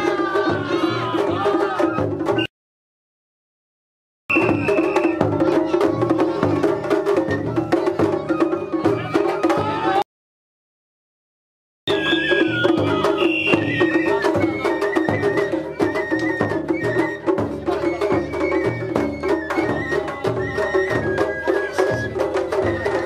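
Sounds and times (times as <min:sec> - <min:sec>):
taiko drums beating: 0:00.0 - 0:02.4, 0:04.3 - 0:10.0, 0:11.9 - 0:23.0
sharp high drum strikes: 0:04.3 - 0:05.6.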